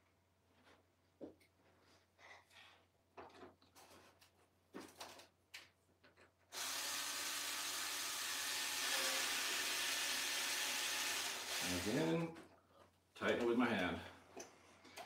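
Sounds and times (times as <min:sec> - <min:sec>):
cordless drill whirring: 0:06.5 - 0:12.2.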